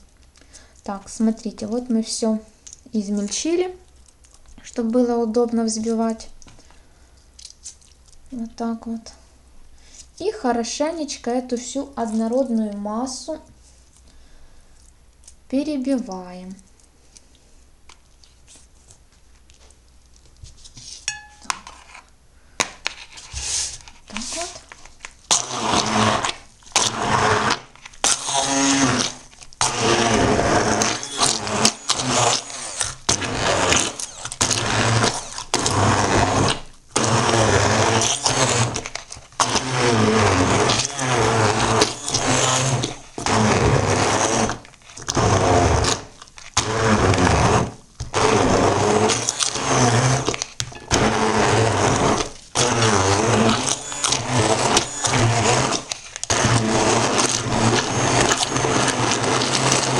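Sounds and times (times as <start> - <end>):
immersion blender motor whirring: 25.3 - 59.9.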